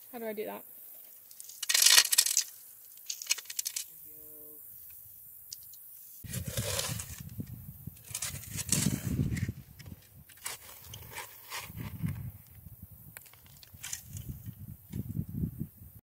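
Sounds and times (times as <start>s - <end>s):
stones clinking and rattling: 1.3s - 3.9s
scraping rustle of soil: 6.0s - 15.2s
shovel crunching into gravel: 6.2s - 7.4s, 8.0s - 9.6s, 10.3s - 12.1s.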